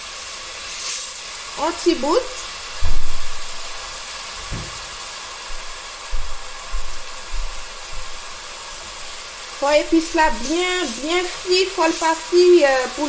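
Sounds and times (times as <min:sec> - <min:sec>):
spices sizzling in oil: 0:00.0 - 0:13.0
dull low thumps: 0:02.7 - 0:03.6, 0:05.5 - 0:08.1.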